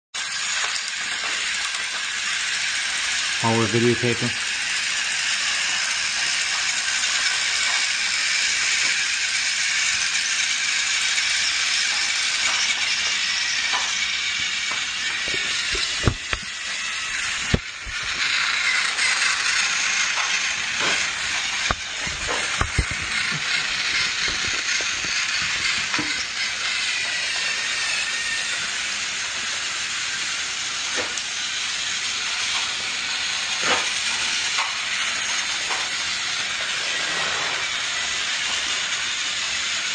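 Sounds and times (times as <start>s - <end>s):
toy train motor whirring: 0.2s - 39.9s.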